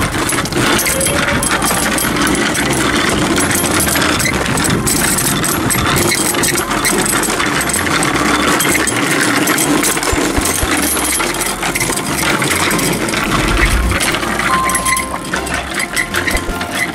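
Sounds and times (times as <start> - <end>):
bicycle rattling over paving: 0.0 - 16.9.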